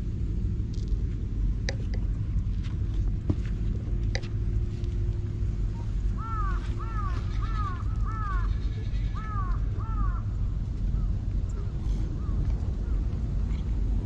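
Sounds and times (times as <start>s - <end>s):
steady low rumble: 0.0s - 14.0s
crow cawing: 6.2s - 10.4s.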